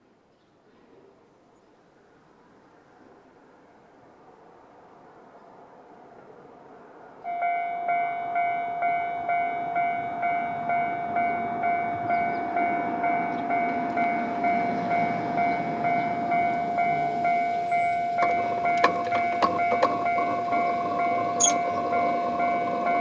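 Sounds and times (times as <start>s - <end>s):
level crossing warning bell: 7.2s - 23.0s
crossing barriers clicking: 7.4s - 23.0s.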